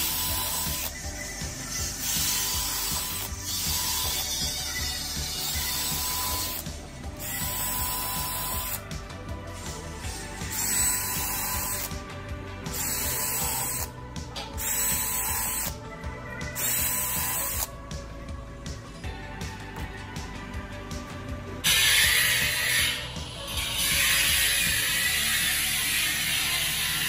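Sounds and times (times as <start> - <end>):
drill motor whine: 0.0 - 8.8, 9.8 - 12.0, 12.7 - 14.0, 14.6 - 15.8, 16.6 - 17.7.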